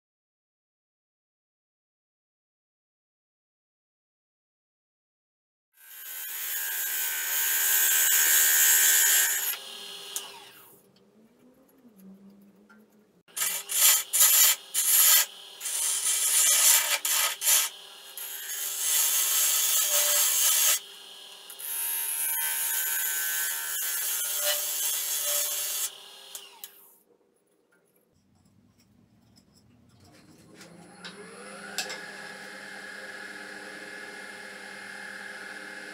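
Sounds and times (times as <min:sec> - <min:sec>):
lathe tool rasping scrape: 0:13.3 - 0:20.8
lathe humming: 0:30.8 - 0:35.9.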